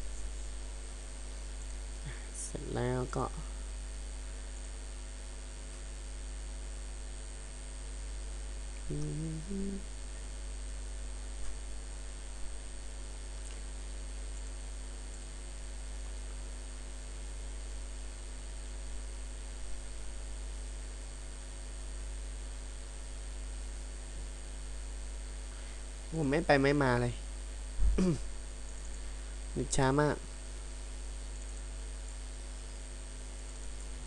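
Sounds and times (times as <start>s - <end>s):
mains hum with hiss: 0.0s - 34.0s
faint clicks: 13.4s - 13.7s.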